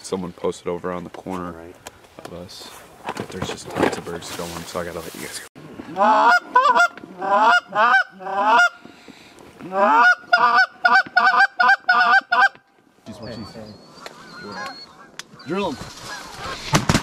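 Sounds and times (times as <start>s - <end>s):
goose call clucks: 5.9s - 8.8s, 9.6s - 16.7s
goose call honking: 5.9s - 8.8s, 9.6s - 16.7s.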